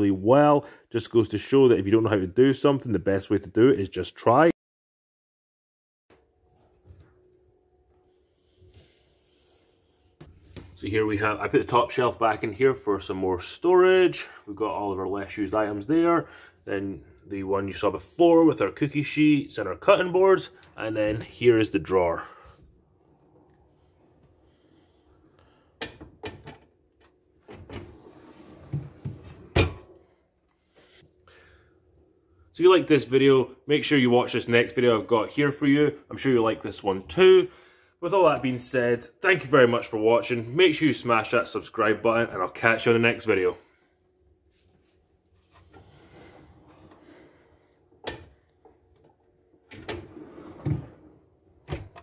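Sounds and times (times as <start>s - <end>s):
drawer sliding out: 27.4s - 30.0s, 45.6s - 48.4s, 49.7s - 52.0s
drawer thumping shut: 28.7s - 29.9s.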